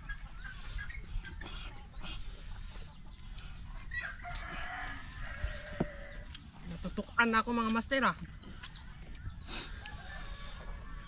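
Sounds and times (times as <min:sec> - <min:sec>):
rooster crowing: 0:04.0 - 0:06.2, 0:09.8 - 0:11.0.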